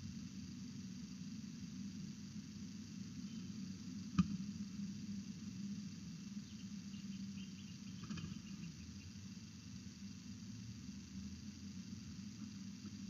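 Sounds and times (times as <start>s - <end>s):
low outdoor hum: 0.0s - 13.0s
faint high chirping: 3.2s - 3.6s, 6.4s - 9.2s.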